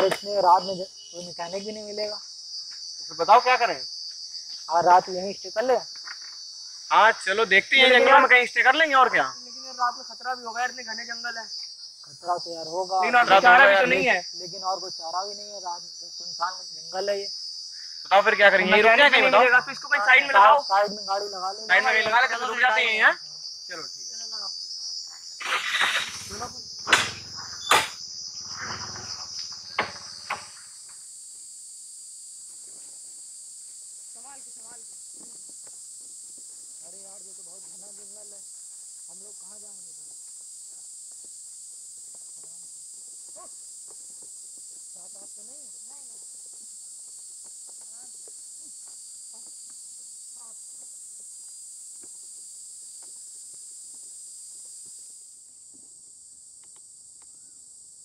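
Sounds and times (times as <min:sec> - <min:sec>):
crickets chirring: 0:00.0 - 0:58.0
sharp knocks: 0:25.4 - 0:28.0, 0:29.7 - 0:30.6.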